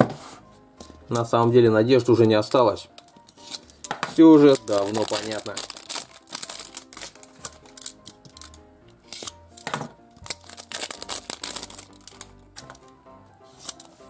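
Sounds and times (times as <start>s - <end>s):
soft background music: 0.0s - 14.0s
plastic wrap crinkling and tearing: 2.5s - 12.9s.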